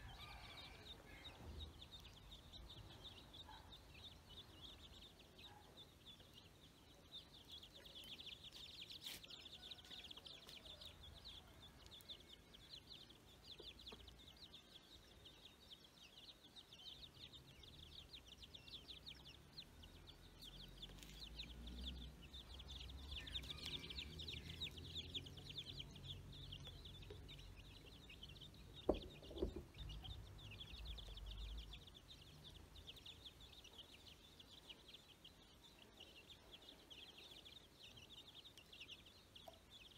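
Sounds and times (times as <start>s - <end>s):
ducklings peeping: 0.1s - 39.9s
sharp knocks: 28.9s - 29.7s.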